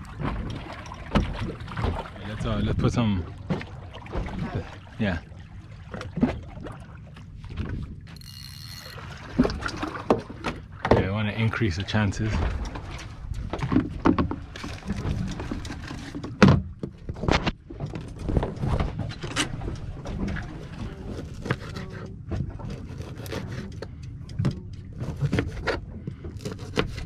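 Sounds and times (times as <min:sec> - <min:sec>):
knife cutting bait on board: 0:21.1 - 0:23.9, 0:25.0 - 0:27.0.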